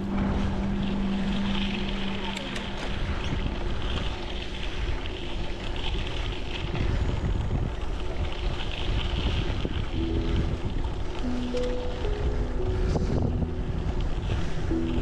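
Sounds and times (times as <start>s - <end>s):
steady rushing noise: 0.0s - 15.0s
wind buffeting microphone: 0.0s - 15.0s
soft held musical notes: 9.8s - 15.0s.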